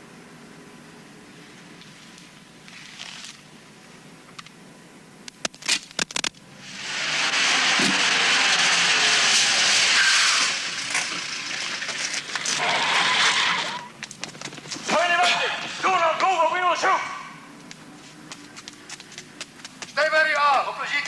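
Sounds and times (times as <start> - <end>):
loud rushing hiss: 6.5 - 13.9.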